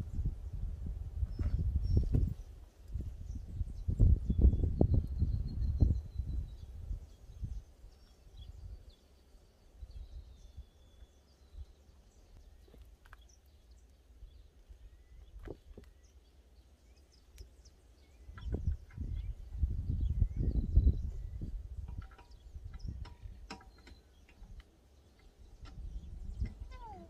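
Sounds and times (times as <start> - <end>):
wind rumble on microphone: 0.0 - 12.7, 14.1 - 16.1, 16.8 - 27.0
faint bird calls: 22.1 - 27.0.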